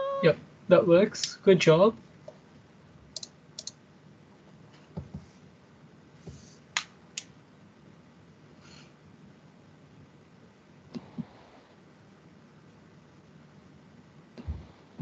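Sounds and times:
faint background hiss: 0.0 - 15.0
computer mouse clicks: 3.1 - 3.8.

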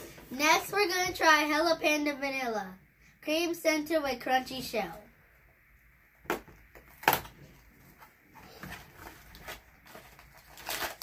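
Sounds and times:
cardboard rustling: 6.9 - 11.0.

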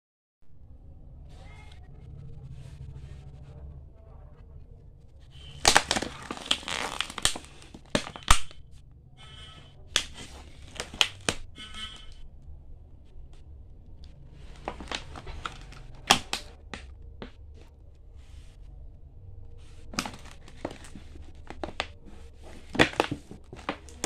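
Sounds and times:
plastic wrapping crinkling: 5.4 - 8.7, 9.4 - 12.3, 14.3 - 17.7, 19.6 - 24.0.

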